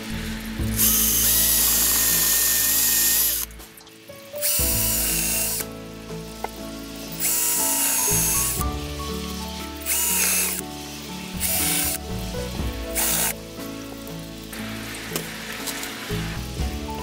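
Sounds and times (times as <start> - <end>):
cordless drill driving screws: 0.8 - 3.5, 4.4 - 5.6, 7.2 - 8.6, 9.9 - 10.6, 11.4 - 12.0, 13.0 - 13.4.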